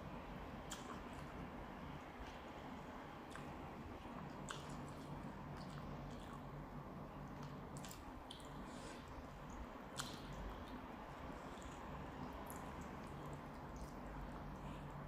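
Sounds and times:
steady low hum: 0:00.0 - 0:15.0
wet chewing: 0:03.3 - 0:06.5, 0:07.4 - 0:14.0.

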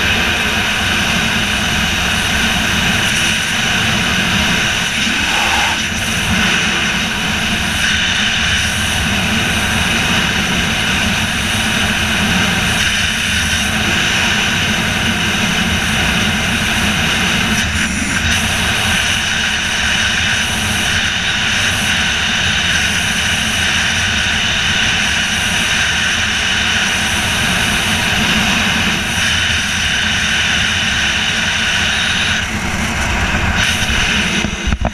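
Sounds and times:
wind rushing over camera: 0:00.1 - 0:23.7.

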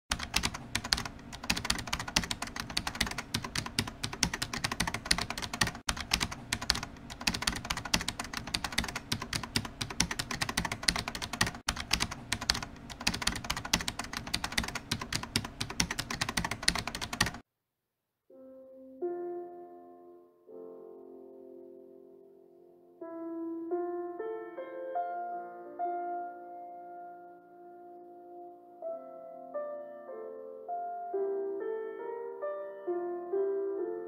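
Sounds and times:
fast keyboard typing: 0:00.1 - 0:17.4.

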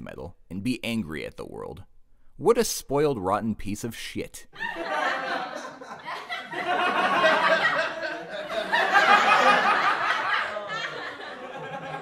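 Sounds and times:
audience laughter: 0:04.6 - 0:12.0.

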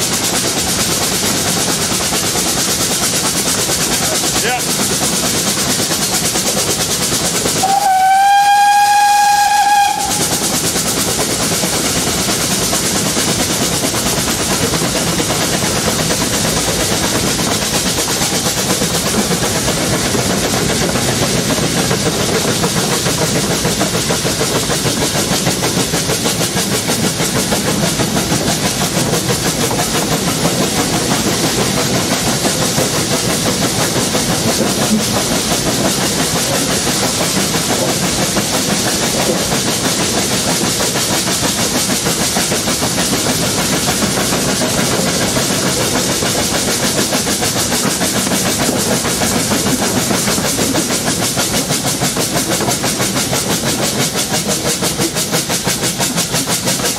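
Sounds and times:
steam locomotive exhaust beats: 0:00.0 - 0:56.9
wheel clatter on rails: 0:09.1 - 0:56.9.

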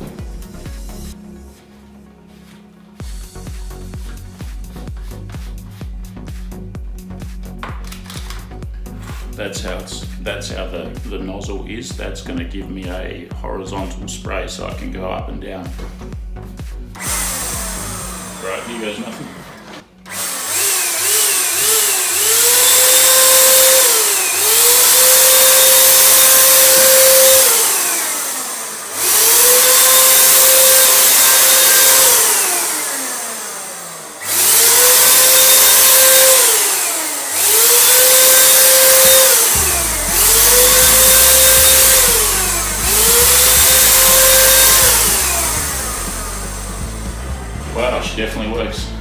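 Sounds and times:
electric paint spray gun whining: 0:16.9 - 0:48.1.

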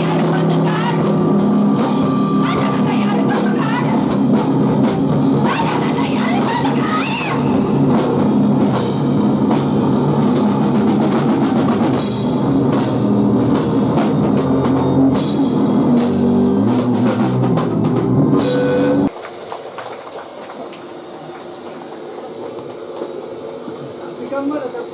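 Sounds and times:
rock band playing: 0:00.0 - 0:19.1.

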